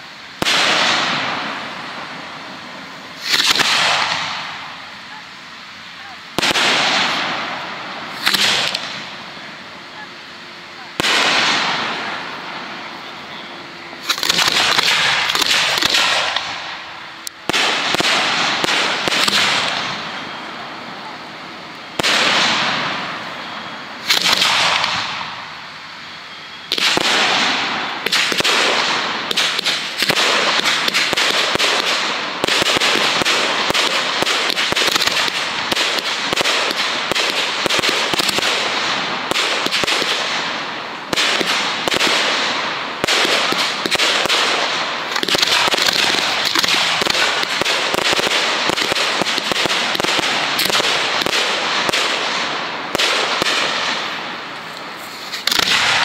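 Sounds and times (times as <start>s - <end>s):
firework bangs and crackling: 0.0s - 56.0s
firework bursts: 0.0s - 56.0s.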